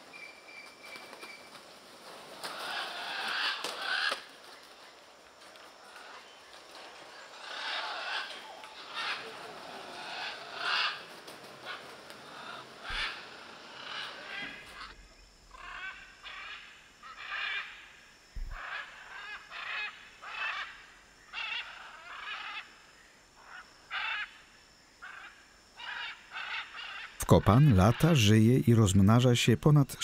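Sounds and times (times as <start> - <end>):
macaws squawking: 2.4 - 4.3, 7.3 - 17.8, 18.4 - 22.7, 23.4 - 24.4, 25.0 - 28.5.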